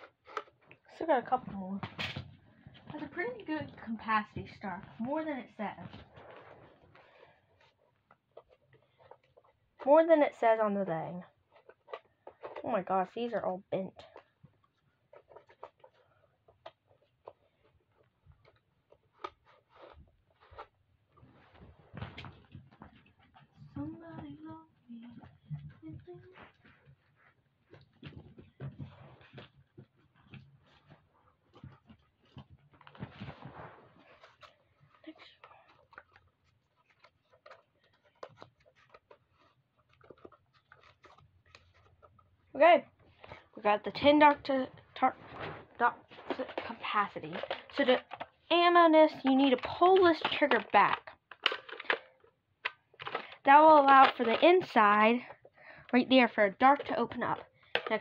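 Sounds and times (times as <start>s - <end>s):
plastic toy clicks and rustles: 46.2s - 55.4s, 56.5s - 58.0s.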